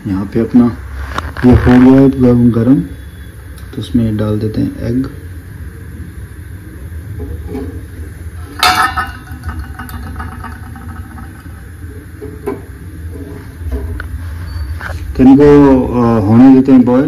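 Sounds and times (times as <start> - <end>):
steady low hum: 0.0 - 17.0
egg knocking against metal pan: 8.5 - 11.7.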